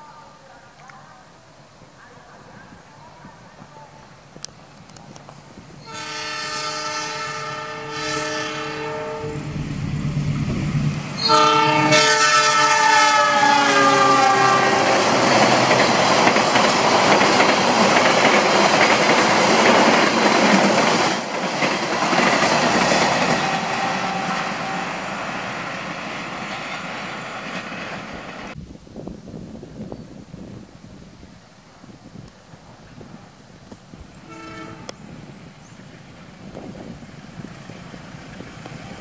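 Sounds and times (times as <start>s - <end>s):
locomotive horn blowing: 5.8s - 9.6s, 11.2s - 15.5s, 23.2s - 25.4s, 34.2s - 35.0s
train carriages rushing and rattling: 5.8s - 28.6s.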